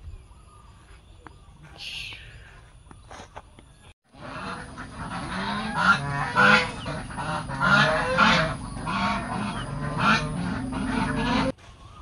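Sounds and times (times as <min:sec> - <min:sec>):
geese honking: 0:04.1 - 0:11.6.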